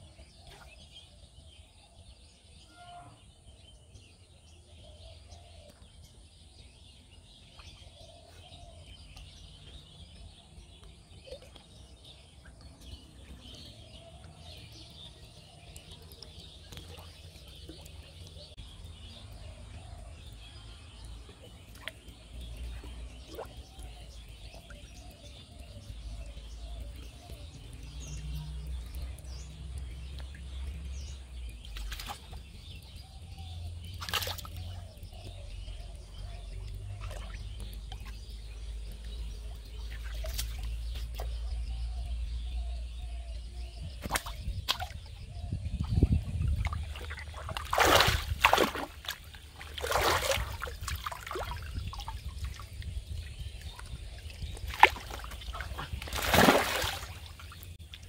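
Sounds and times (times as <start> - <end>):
pond water sloshing: 0.0 - 1.4, 7.2 - 42.4, 43.6 - 58.0
fish thrashing in net: 47.0 - 51.6, 54.7 - 57.3.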